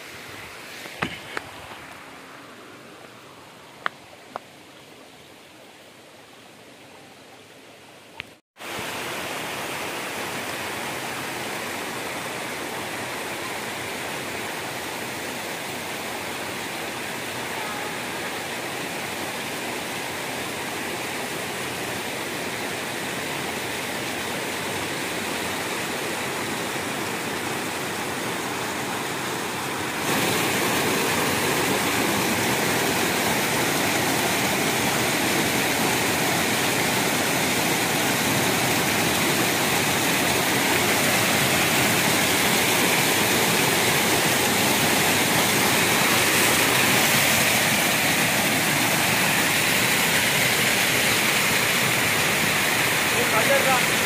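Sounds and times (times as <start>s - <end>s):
river rushing over rocks: 0.0s - 6.6s, 8.6s - 54.0s.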